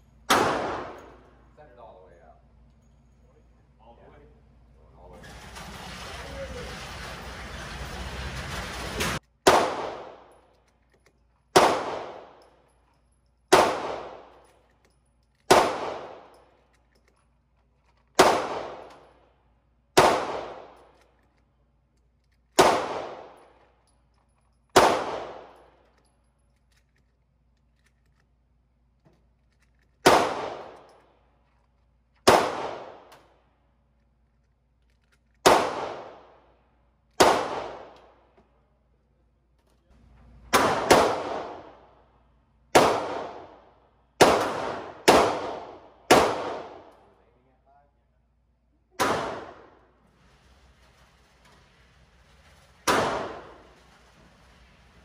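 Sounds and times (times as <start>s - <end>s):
handgun shots echoing: 0.3s - 1.3s, 9.4s - 10.4s, 11.5s - 12.7s, 13.5s - 14.5s, 15.4s - 16.4s, 18.1s - 19.2s, 20.0s - 21.1s, 22.5s - 23.6s, 24.7s - 25.8s, 30.0s - 31.0s, 32.2s - 33.3s, 35.4s - 36.4s, 37.2s - 38.3s, 40.5s - 41.9s, 42.7s - 47.1s, 49.0s - 49.9s, 52.8s - 53.7s.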